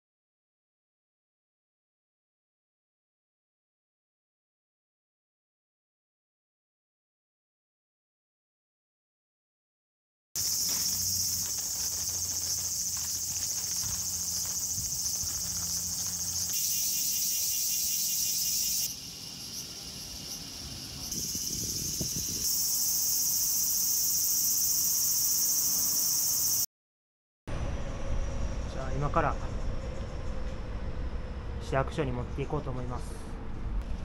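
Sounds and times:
insects chorus: 10.4 - 26.7
rapid pulsing insect call: 10.4 - 26.7
low hum: 27.5 - 34.0.

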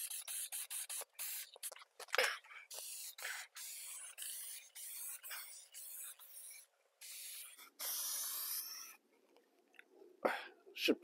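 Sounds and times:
aerosol spray can hissing: 0.0 - 1.8, 2.7 - 9.0.

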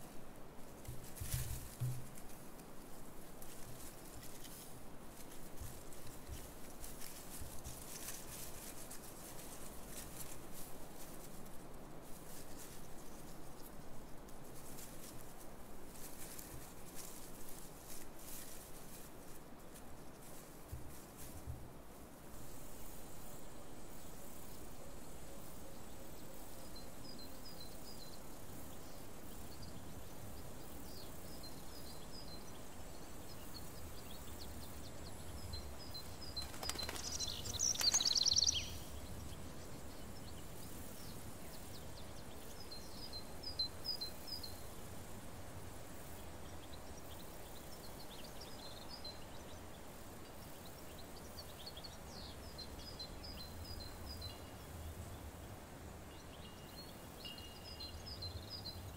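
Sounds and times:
faint steady hiss: 0.0 - 58.9
small birds chirping: 22.9 - 58.9.

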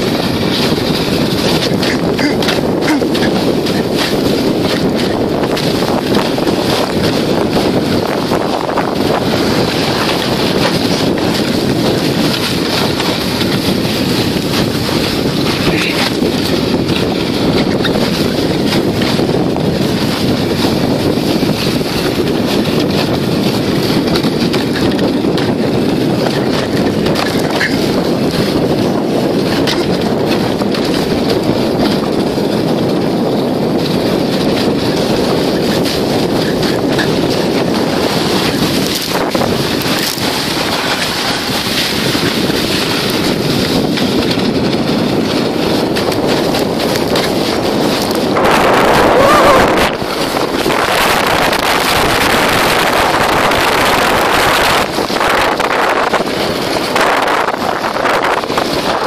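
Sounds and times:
sledge scraping over snow: 0.0 - 59.0
wind buffeting microphone: 0.0 - 59.0.

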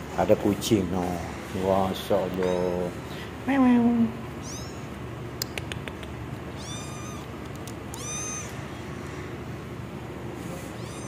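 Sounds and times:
kitten meowing: 2.4 - 2.8, 4.4 - 4.9, 6.5 - 7.3, 7.9 - 8.8, 10.7 - 11.0
faint clicks: 7.4 - 8.0.

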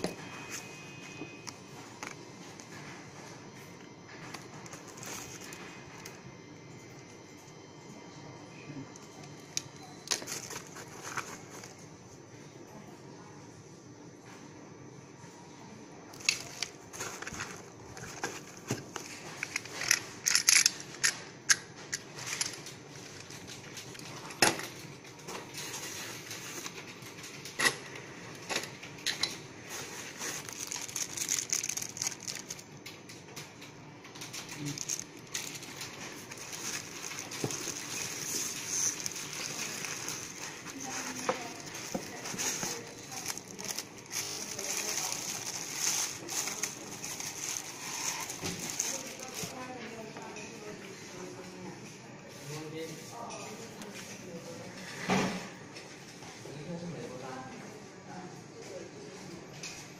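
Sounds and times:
plastic wrapping crinkling: 4.2 - 6.2, 9.6 - 11.9, 16.1 - 20.8, 28.9 - 50.4
clicks and knocks of parts: 19.0 - 24.9.

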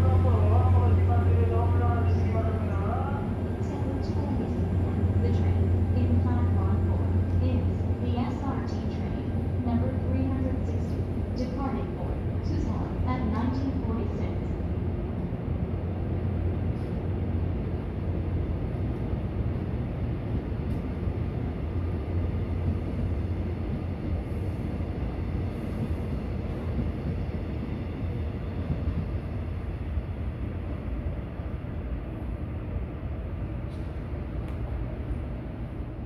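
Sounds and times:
train wheels rumbling on rails: 0.0 - 36.0.

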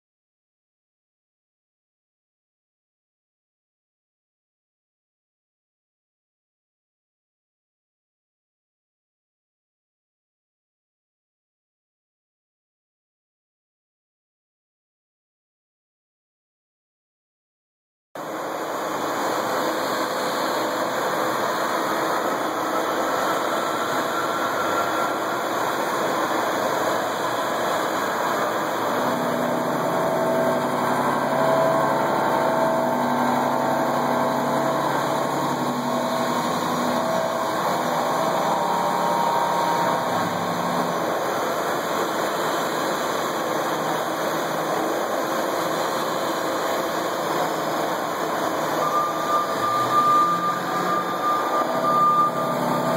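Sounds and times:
milling machine cutting noise: 18.9 - 52.9
humming tone: 19.0 - 43.3, 47.3 - 52.9.

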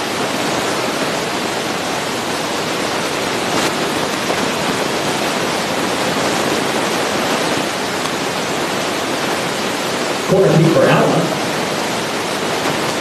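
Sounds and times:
steady rushing noise: 10.2 - 12.4.

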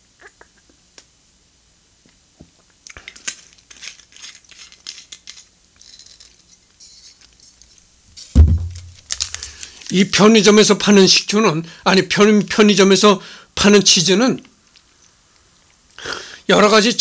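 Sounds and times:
plastic wrapper crinkling: 3.0 - 6.3, 8.4 - 10.1
loud thump: 8.4 - 9.4.

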